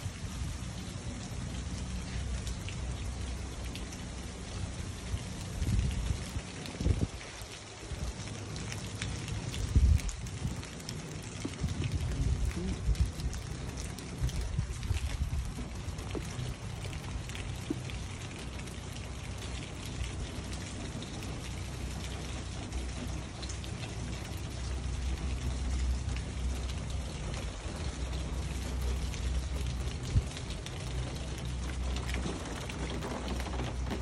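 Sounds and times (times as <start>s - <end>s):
steady rain falling: 0.0s - 34.0s
wind rumble on microphone: 0.0s - 34.0s.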